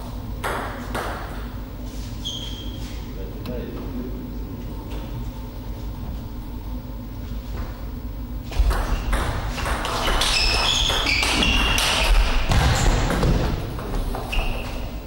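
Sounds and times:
shoes squeaking on floor: 2.0s - 3.1s, 9.9s - 15.0s.

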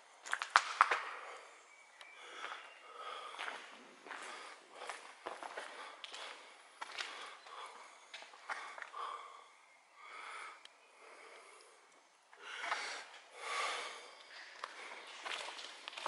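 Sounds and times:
person breathing heavily: 1.1s - 15.6s
footsteps on concrete: 2.4s - 9.0s, 14.3s - 16.0s.

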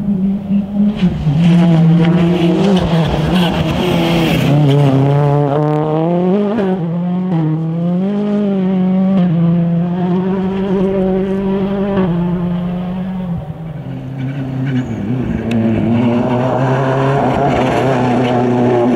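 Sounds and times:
rally car engine revving: 0.0s - 18.9s.

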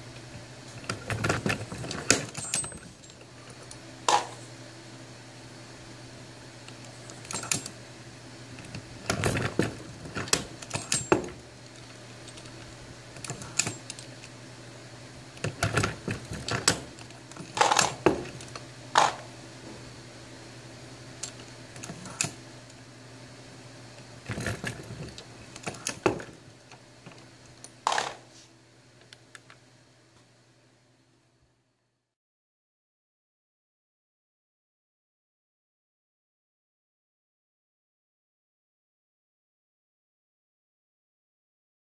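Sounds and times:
steady low hum: 0.0s - 31.9s.

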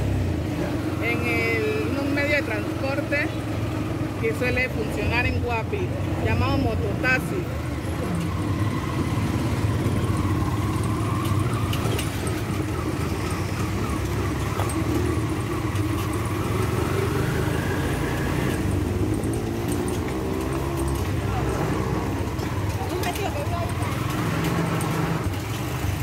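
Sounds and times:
road noise: 0.0s - 26.0s
small motorcycle engine running: 6.0s - 26.0s.

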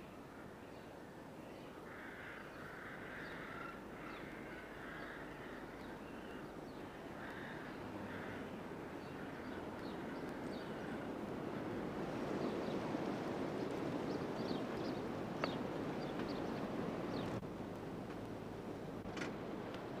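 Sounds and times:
rooks cawing: 1.8s - 11.1s.

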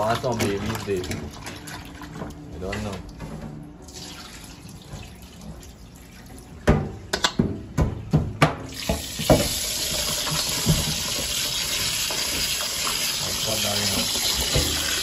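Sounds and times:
tap water pouring into bowl: 8.7s - 15.0s.

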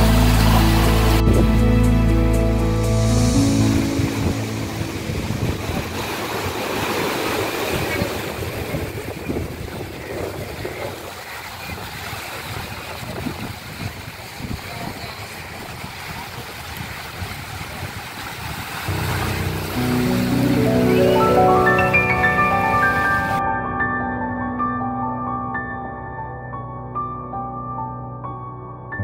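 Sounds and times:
waves splashing against concrete: 3.5s - 23.4s
wind buffeting microphone: 3.7s - 19.8s.

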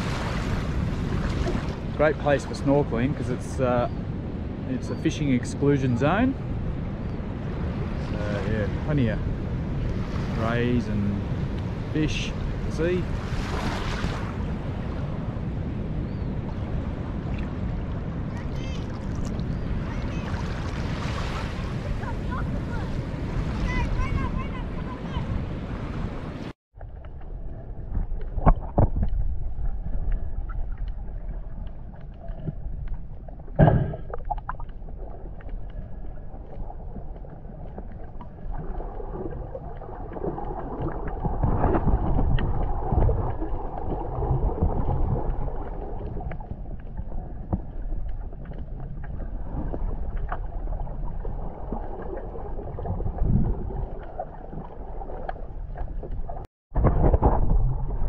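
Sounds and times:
muffled underwater water rumble: 0.0s - 58.0s
sharp knocks: 33.6s - 34.2s.

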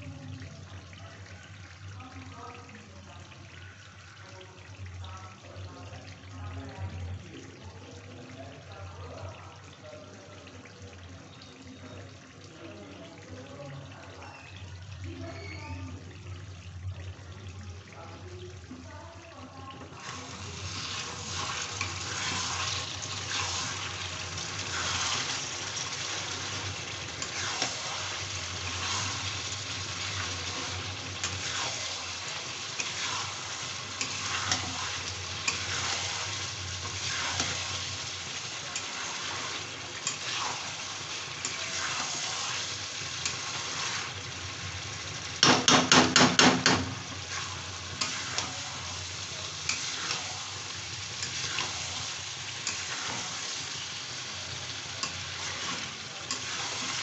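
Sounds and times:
curry sizzling: 0.0s - 57.0s
curry bubbling: 9.7s - 45.5s
spatula stirring: 19.9s - 44.3s, 45.4s - 57.0s.

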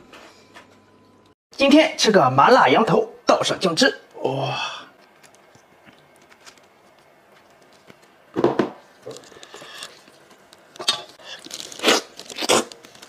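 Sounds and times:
soft tearing and rustling: 5.0s - 8.2s, 9.0s - 13.0s
meat ripping by hand: 10.7s - 13.0s.

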